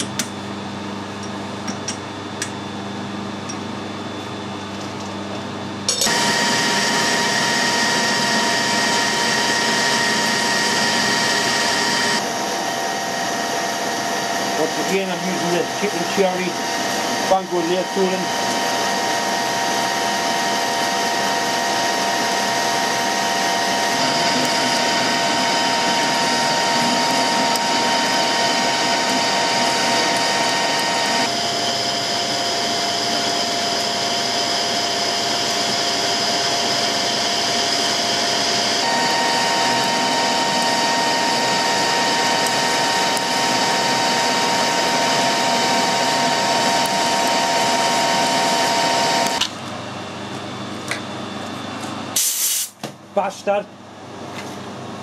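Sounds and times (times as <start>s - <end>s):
metal lathe whining: 5.9s - 49.4s.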